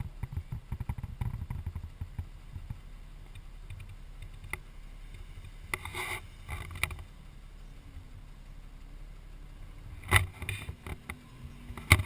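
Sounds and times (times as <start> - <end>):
wind buffeting camera: 0.0 - 7.2
light rattles: 0.0 - 12.0
low engine rumble: 0.0 - 12.0.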